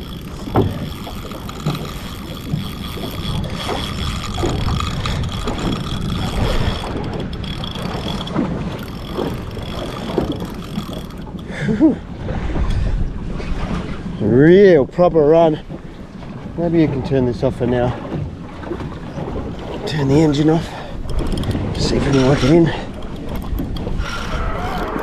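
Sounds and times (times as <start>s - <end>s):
fishing reel drag whirring: 0.0s - 12.0s, 18.6s - 25.0s
outboard engine running: 0.0s - 25.0s
water noise: 0.0s - 25.0s
wind: 0.0s - 25.0s.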